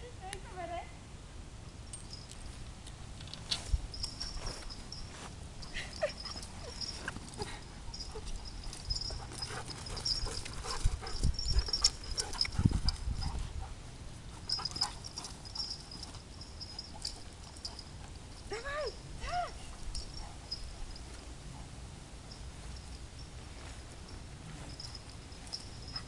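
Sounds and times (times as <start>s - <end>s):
faint high chirring: 3.9s - 13.4s, 14.3s - 21.3s, 22.2s - 26.0s
dog noises: 5.7s - 18.2s.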